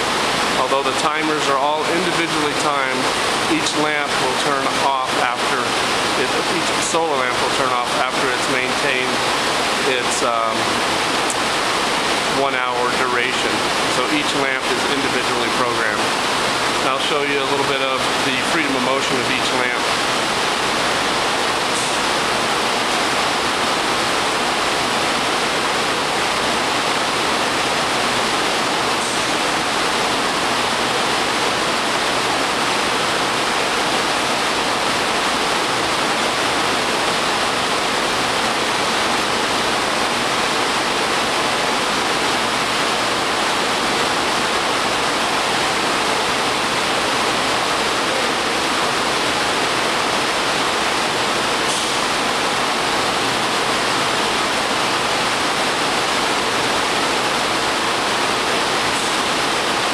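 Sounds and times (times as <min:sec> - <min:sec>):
rushing air hiss: 0:51.6 - 0:52.3.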